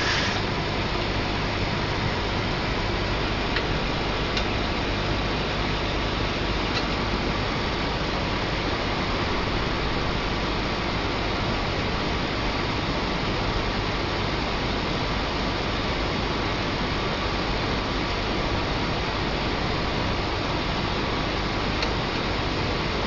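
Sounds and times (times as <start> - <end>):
steady hiss: 0.0 - 5.5.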